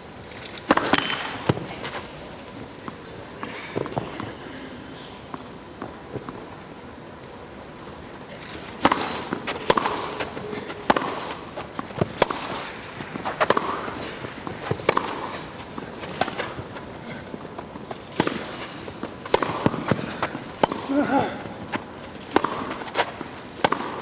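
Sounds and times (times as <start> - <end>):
racket hitting tennis ball: 0.5 - 4.5, 7.9 - 24.0
ball bounces: 0.7 - 1.7, 8.8 - 12.6, 13.3 - 16.7, 19.2 - 24.0.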